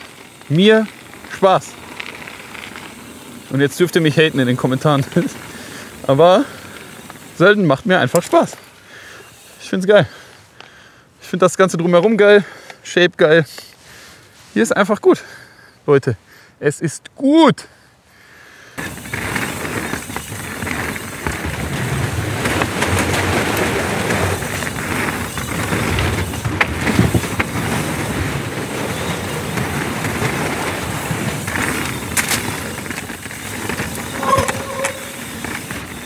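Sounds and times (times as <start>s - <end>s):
bike rattling over bumps: 0.0s - 10.3s, 18.8s - 36.0s
bike tyres rolling on dirt: 0.0s - 10.9s, 18.8s - 36.0s.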